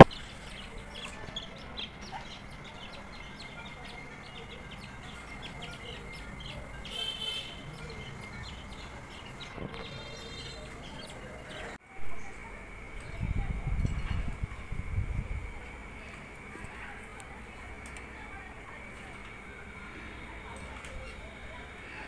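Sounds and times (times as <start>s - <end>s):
budgerigar chicks cheeping: 0.0s - 11.8s
buzzy bird call: 0.0s - 11.8s.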